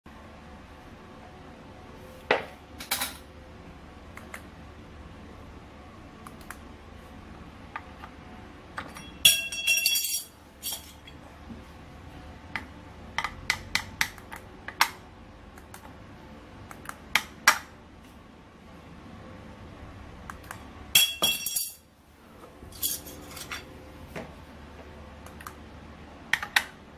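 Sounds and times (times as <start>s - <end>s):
clattering ringing rattle: 8.9s - 11.1s, 21.0s - 21.8s, 22.7s - 23.6s.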